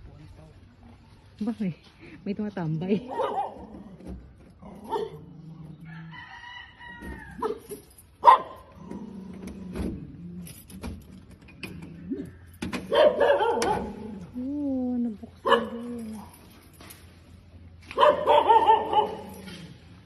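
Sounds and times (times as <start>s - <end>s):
rooster crowing: 5.8s - 7.6s.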